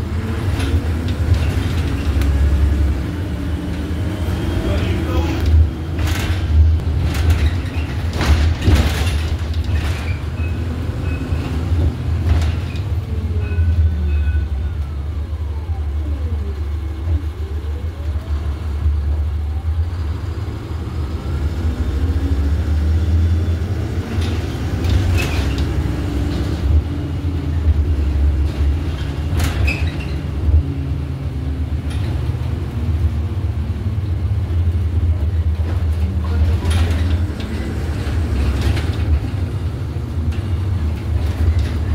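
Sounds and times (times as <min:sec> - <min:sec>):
bus drivetrain rumble: 0:00.0 - 0:41.9
knocks and rattles: 0:05.4 - 0:13.0, 0:27.6 - 0:30.8, 0:35.5 - 0:41.9.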